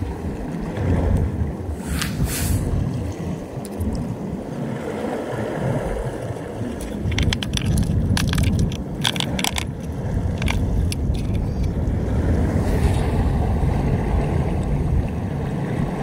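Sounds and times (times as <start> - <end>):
wind rumbling on microphone: 0.0 - 16.0
light clicks and clinks: 6.8 - 11.8.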